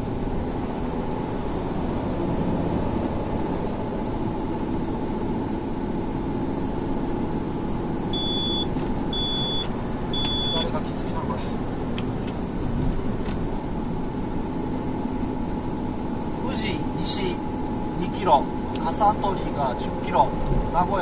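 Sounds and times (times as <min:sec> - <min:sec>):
tyre and engine noise in car: 0:00.0 - 0:21.0
high electronic beep: 0:08.2 - 0:10.8.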